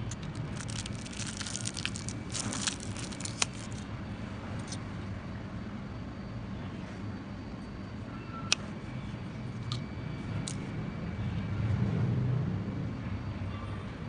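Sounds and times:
plastic packaging crinkling: 0.0 - 3.8.

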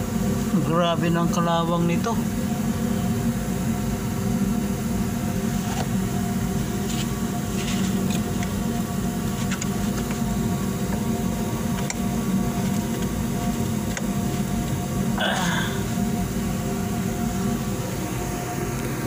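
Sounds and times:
electric machine hum: 0.0 - 19.0.

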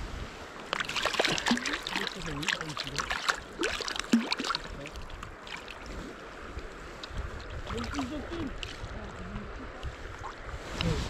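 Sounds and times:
water splashing and gurgling: 0.5 - 11.0
fish kicking at water surface: 0.7 - 5.9.

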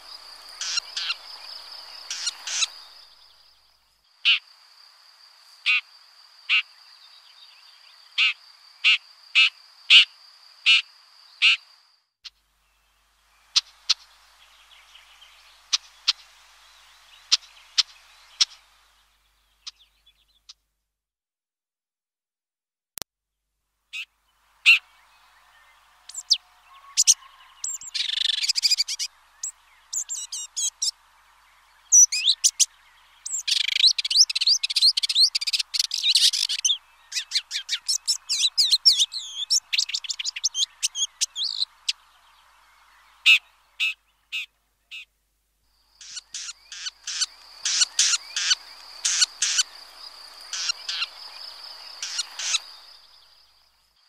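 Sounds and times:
bird singing scratchy warble: 0.0 - 3.8, 12.7 - 20.6, 24.0 - 45.1, 45.8 - 54.0
sharp repeated bird notes: 46.0 - 49.7, 50.5 - 51.1, 52.0 - 52.8.

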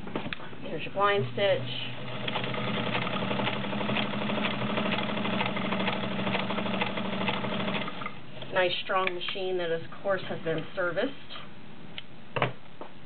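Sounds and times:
sewing machine motor hum: 1.0 - 8.2.

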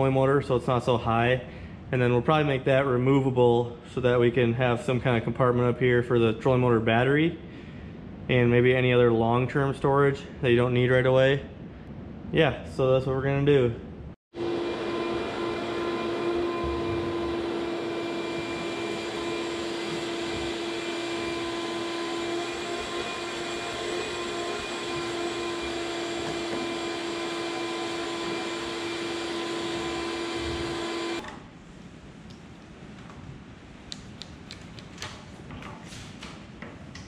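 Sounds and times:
shop vacuum running: 14.3 - 31.4.

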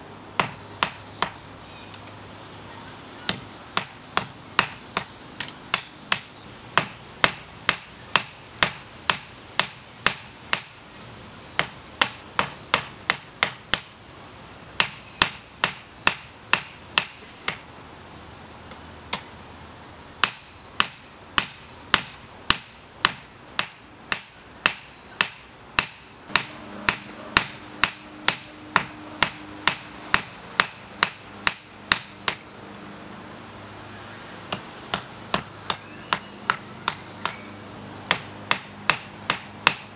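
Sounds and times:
hammer blows on anvil: 0.0 - 1.6, 3.3 - 14.2, 20.2 - 32.6, 34.5 - 39.9.

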